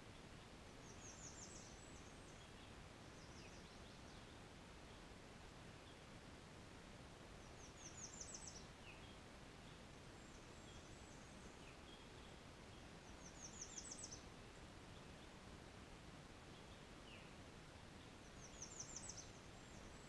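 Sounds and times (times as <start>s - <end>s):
songbird singing: 0.0s - 20.0s.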